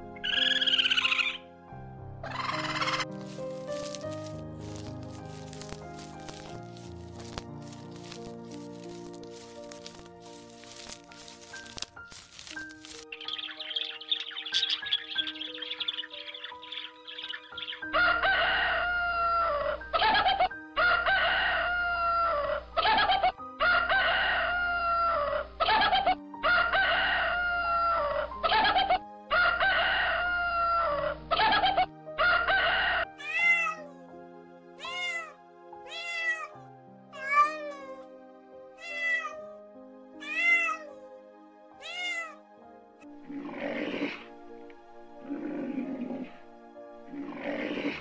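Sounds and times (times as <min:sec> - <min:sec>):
rooster crowing: 0:17.9 - 0:19.8, 0:20.8 - 0:22.7, 0:23.6 - 0:25.4, 0:29.3 - 0:31.2
cat meowing: 0:33.2 - 0:34.0, 0:34.8 - 0:36.6, 0:37.2 - 0:38.1, 0:38.8 - 0:39.6, 0:40.2 - 0:41.0, 0:41.8 - 0:42.4.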